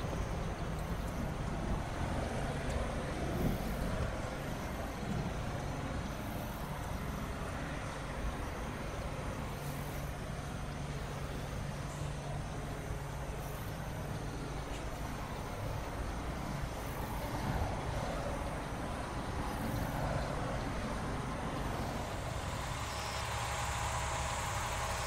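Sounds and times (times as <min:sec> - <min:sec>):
trucks and cars passing: 0:00.0 - 0:25.0
low steady hum: 0:20.2 - 0:25.0.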